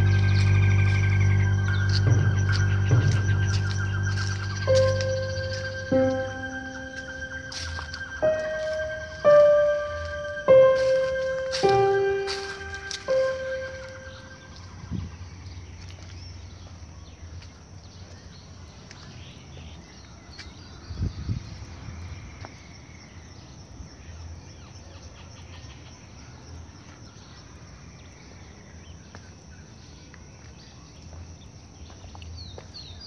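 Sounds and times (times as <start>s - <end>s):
low rumble: 0.0s - 15.8s
birds chirping: 0.0s - 21.7s
insects chirping: 0.0s - 33.0s.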